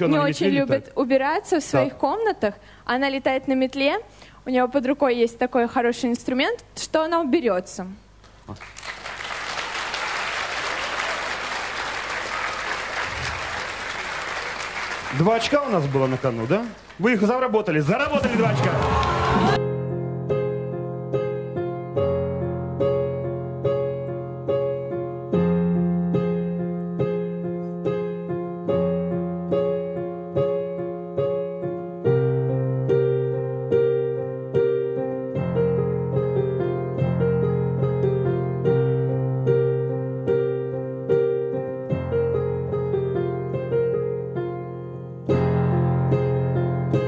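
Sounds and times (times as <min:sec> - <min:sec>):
slow solo piano: 0:19.6 - 0:47.0.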